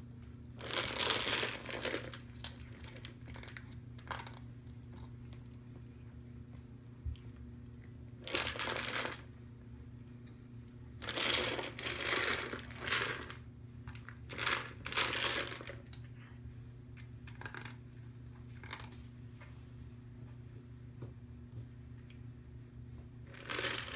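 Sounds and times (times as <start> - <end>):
steady low hum: 0.0 - 23.9
dry food rattling in plastic cup: 8.2 - 9.2, 11.0 - 13.2, 23.3 - 23.9.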